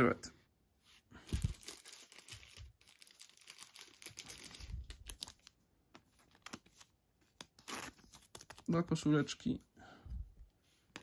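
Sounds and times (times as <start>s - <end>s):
plastic sleeve crinkling: 1.2s - 9.0s.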